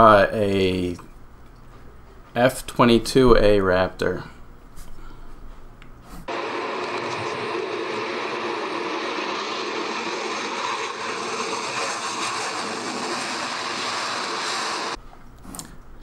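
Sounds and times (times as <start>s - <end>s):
jet flying low past: 6.3s - 15.0s.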